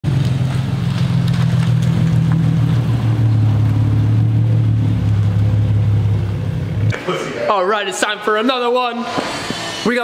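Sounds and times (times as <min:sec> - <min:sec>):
car exhaust droning at low speed: 0:00.0 - 0:07.0.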